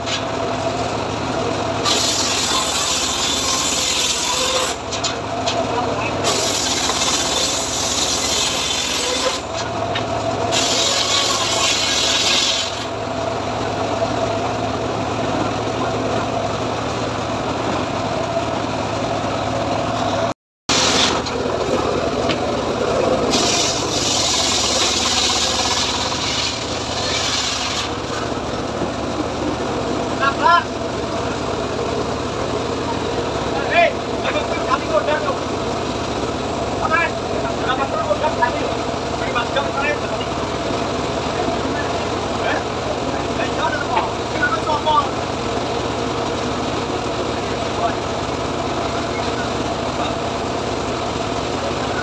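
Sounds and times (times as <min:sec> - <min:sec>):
engine droning: 0:00.0 - 0:52.0
saw blade hissing through wood: 0:01.8 - 0:05.0, 0:06.2 - 0:09.6, 0:10.5 - 0:13.0, 0:20.7 - 0:21.3, 0:23.2 - 0:28.1.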